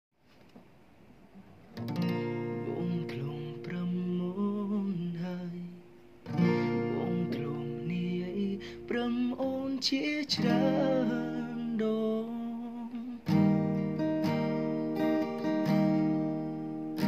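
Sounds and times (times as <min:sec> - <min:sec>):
acoustic guitar chords and melody: 0:01.7 - 0:17.0.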